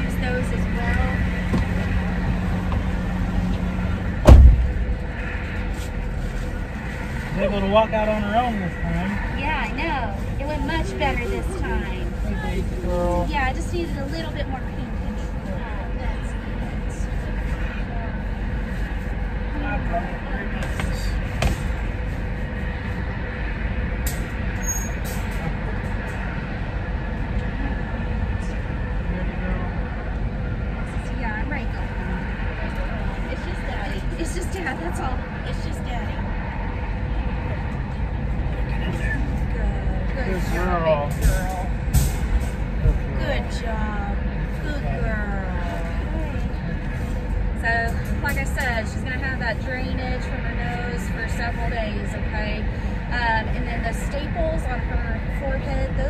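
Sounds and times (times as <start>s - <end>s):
vehicle engine hum: 0.0s - 56.0s
loud thump: 4.2s - 5.0s.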